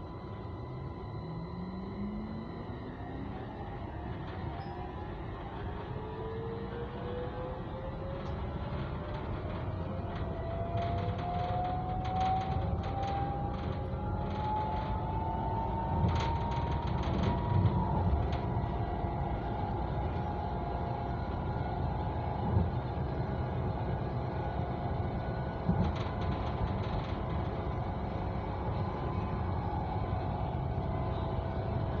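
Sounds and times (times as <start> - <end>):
train rumble with motor whine: 0.0 - 32.0
wheels clicking on track: 7.9 - 32.0.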